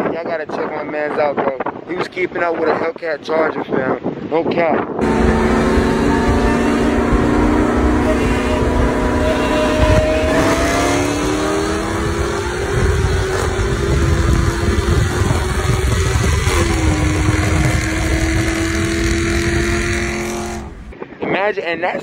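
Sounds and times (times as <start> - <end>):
wind and road noise: 0.0 - 22.0
car engine at full throttle: 5.0 - 20.9.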